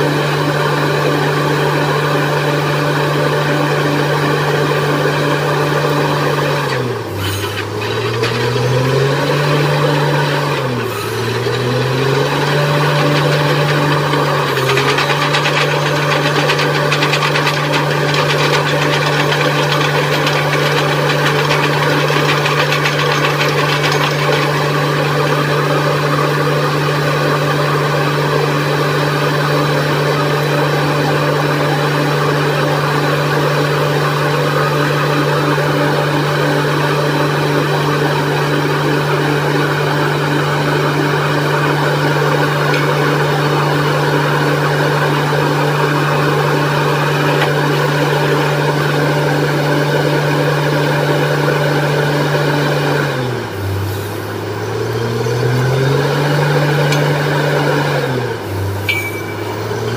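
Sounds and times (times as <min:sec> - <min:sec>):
diesel drilling rig drone: 0:00.0 - 0:59.9
fast rattle: 0:10.8 - 0:25.5.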